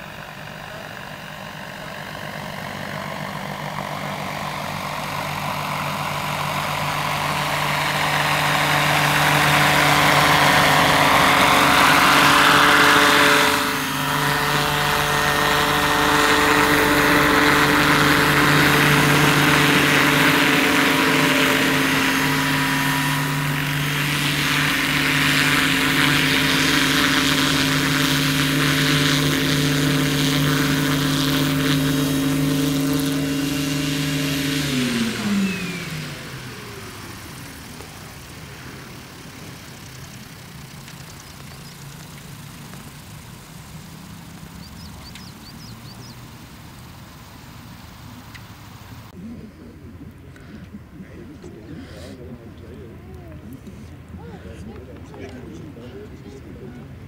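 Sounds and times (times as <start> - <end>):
model helicopter rotor: 0.0 - 49.4.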